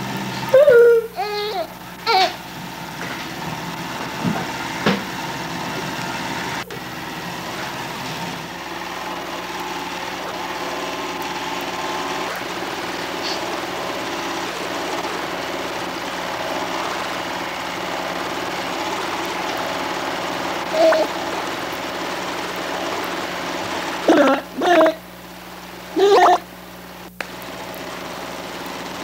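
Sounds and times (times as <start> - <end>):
small motor whirring: 20.7 - 21.8.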